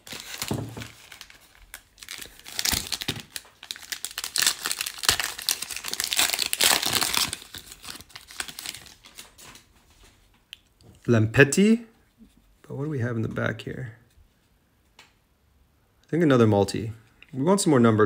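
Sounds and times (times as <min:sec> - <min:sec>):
foil wrapper crinkling: 0:00.0 - 0:09.7.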